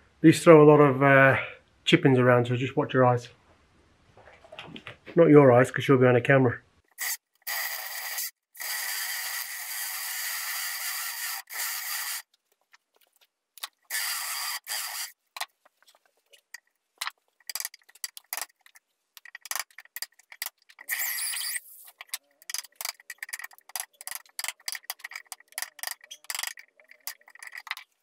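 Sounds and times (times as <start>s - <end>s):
power drill boring into log: 7.0s - 12.2s, 13.9s - 15.1s.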